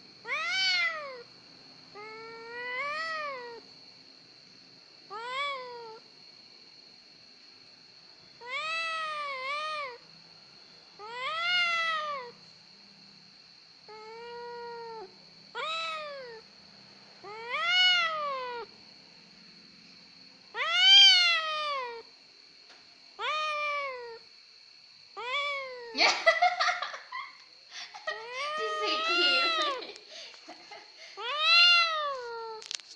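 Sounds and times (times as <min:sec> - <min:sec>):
cat meowing: 0:00.2 - 0:01.3, 0:02.0 - 0:03.6, 0:05.1 - 0:06.0, 0:08.4 - 0:10.0, 0:11.0 - 0:12.4, 0:13.9 - 0:16.4, 0:17.2 - 0:18.7, 0:20.5 - 0:22.0, 0:23.2 - 0:24.2, 0:25.2 - 0:26.4, 0:28.1 - 0:30.0, 0:31.2 - 0:32.8.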